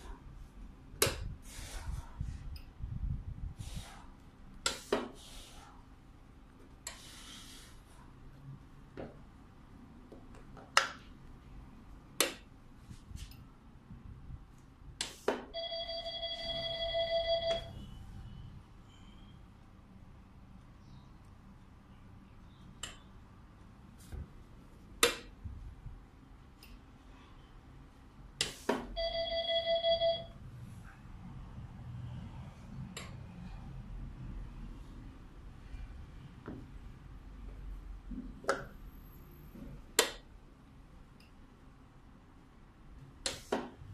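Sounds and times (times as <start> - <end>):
steady electronic beep: 15.5 - 19.4.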